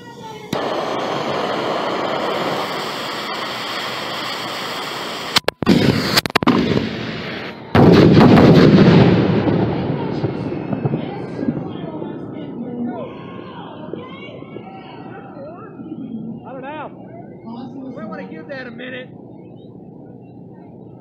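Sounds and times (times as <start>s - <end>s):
fuse hissing: 0.5s - 6.2s
loud booming report: 5.6s - 17.6s
mortars firing with sharp cracks: 7.8s - 9.6s.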